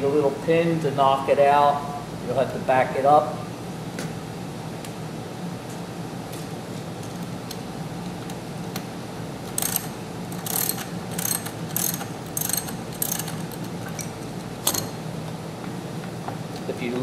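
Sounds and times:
ratchet wrench clicking: 9.5 - 14.9.

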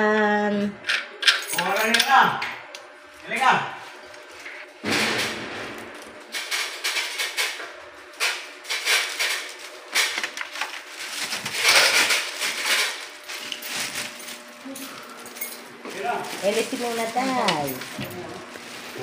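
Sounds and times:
plastic packaging crinkling: 8.0 - 15.2, 15.9 - 19.0.

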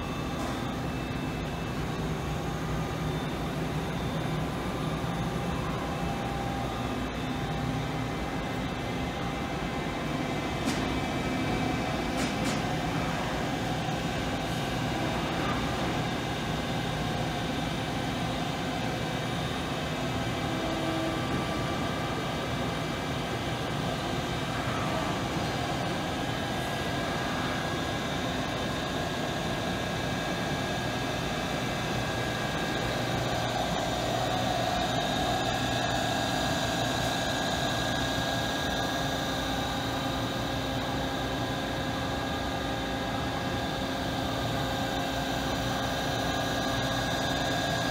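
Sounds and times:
machine hum and fan whir: 0.0 - 47.9.

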